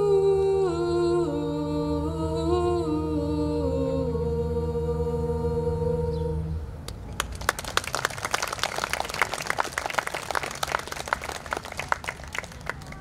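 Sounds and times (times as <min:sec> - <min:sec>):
a cappella chord: 0:00.0 - 0:06.8
audience clapping: 0:07.1 - 0:13.0.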